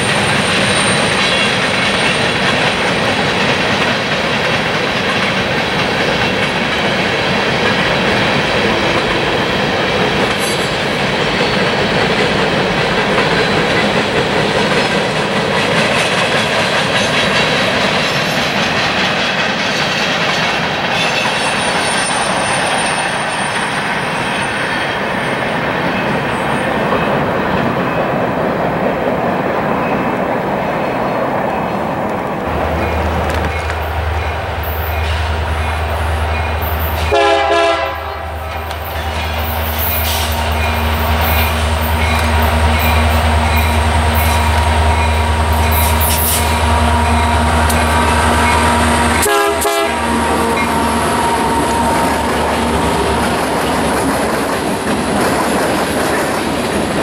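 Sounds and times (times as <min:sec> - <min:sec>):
high wheel squeal: 0:00.0 - 0:02.4, 0:21.0 - 0:25.5, 0:38.2 - 0:53.9
train wheels clacking on rails: 0:00.0 - 0:57.0.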